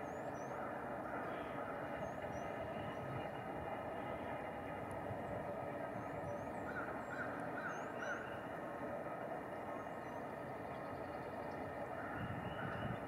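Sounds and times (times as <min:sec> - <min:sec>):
nuthatch calling: 0:06.0 - 0:08.5.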